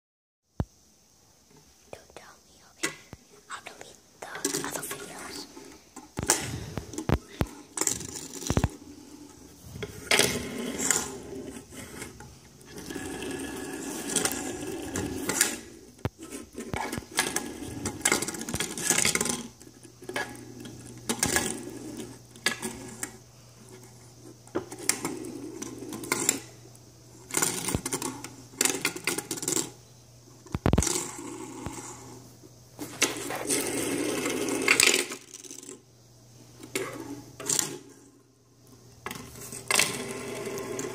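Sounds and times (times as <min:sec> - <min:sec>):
fidget spinners clacking together: 0:04.4 - 0:23.9
fidget spinners whirring: 0:04.4 - 0:29.8.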